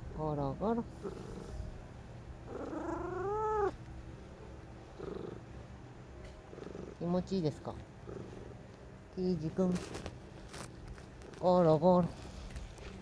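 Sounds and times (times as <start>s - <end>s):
cat purring: 0.6s - 1.8s, 2.4s - 3.8s, 4.8s - 5.6s, 6.5s - 8.7s
cat meowing: 2.5s - 3.8s.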